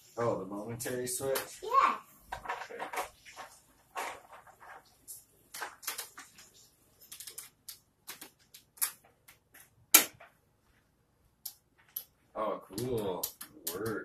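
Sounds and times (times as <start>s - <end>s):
plastic parts clicking and snapping: 7.0s - 10.2s.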